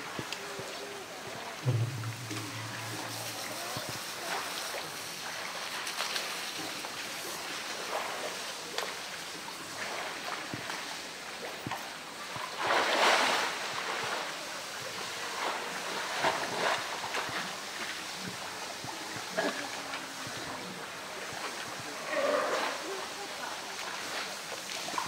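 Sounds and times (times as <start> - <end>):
pool water splashing: 1.6 - 9.2.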